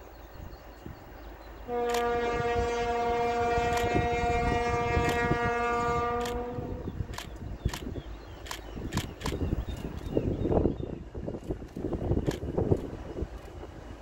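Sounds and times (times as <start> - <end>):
diesel locomotive horn blast: 1.6 - 7.0.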